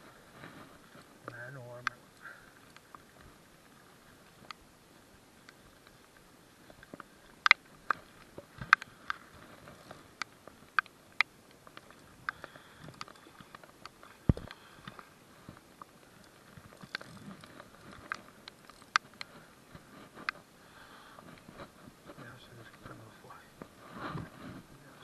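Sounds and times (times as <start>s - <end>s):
ticks and taps on fishing rod: 10.2s - 15.1s.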